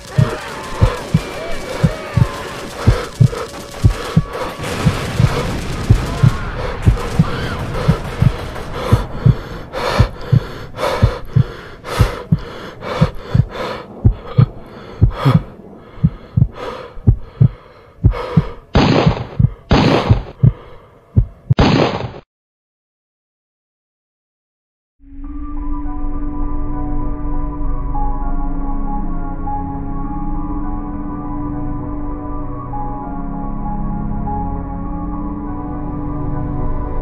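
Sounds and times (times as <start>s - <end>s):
heartbeat thumps: 0.0s - 21.6s
heavy breathing: 0.1s - 21.5s.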